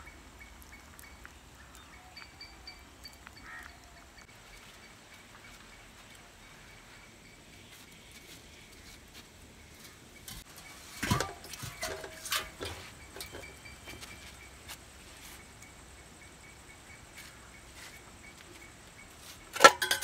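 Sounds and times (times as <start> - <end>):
clinks of metal plate and plastic cup: 11.0 - 14.0, 19.5 - 20.0.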